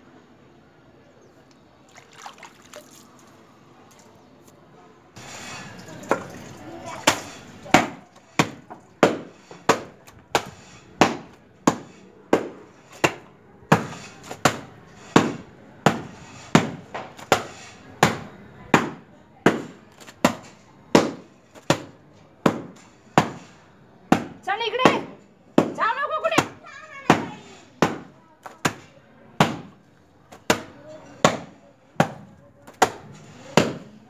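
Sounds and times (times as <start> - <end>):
paddle slapping wet towel: 1.9 - 3.4.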